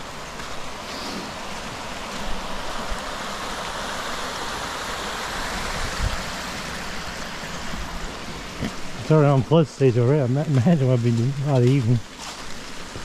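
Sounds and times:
water rushing down a ditch: 0.0 - 13.0.

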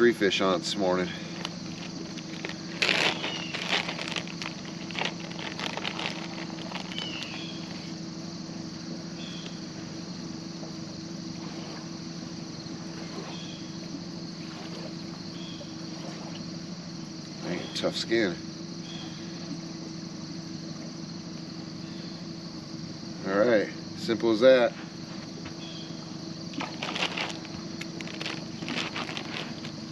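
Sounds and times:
steady low hum: 0.0 - 29.9
plastic bag crinkling: 1.6 - 7.9, 26.6 - 29.9.

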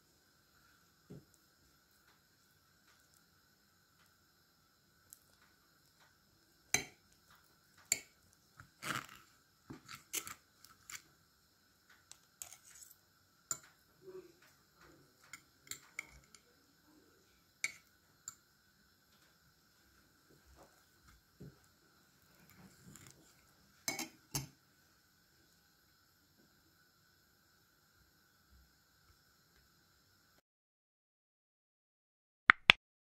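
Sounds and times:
cutlery clicking on a plate: 23.9 - 24.5.

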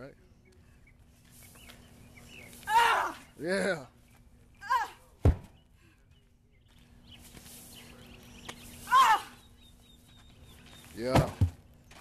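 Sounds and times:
person yelling with effort: 2.7 - 3.3, 4.6 - 5.0, 8.9 - 9.4
tire thudding on dirt: 5.2 - 5.6, 10.9 - 12.0.

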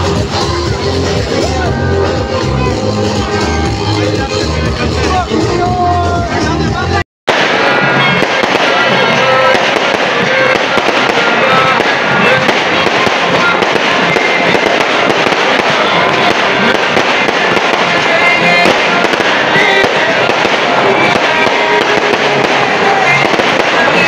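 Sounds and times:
fireworks crackling: 7.3 - 24.0.

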